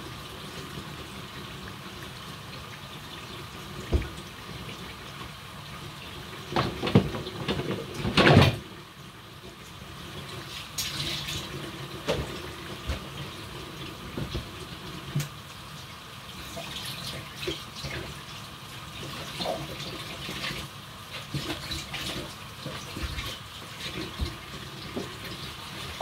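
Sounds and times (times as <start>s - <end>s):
food frying in hot oil: 0.0s - 26.0s
dishes clattering in a rack: 6.6s - 8.6s.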